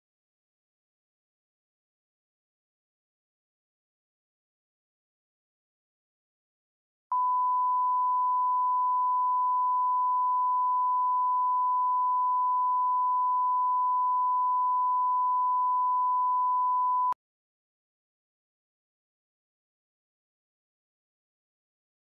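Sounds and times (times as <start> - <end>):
steady test tone beep: 7.1 - 17.2.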